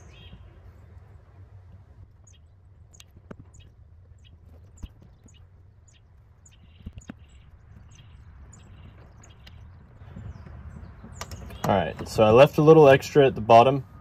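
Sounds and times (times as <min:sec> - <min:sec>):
small birds chirping: 0:00.0 - 0:14.0
sharp clicks: 0:11.1 - 0:12.1.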